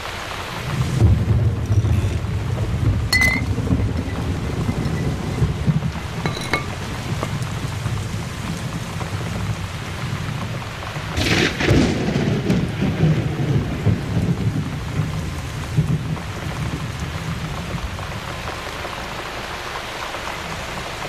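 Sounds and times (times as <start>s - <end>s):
steady rain: 0.0s - 21.0s
low rumbling thunder: 0.6s - 17.8s
loud thunder crash: 11.2s - 14.7s.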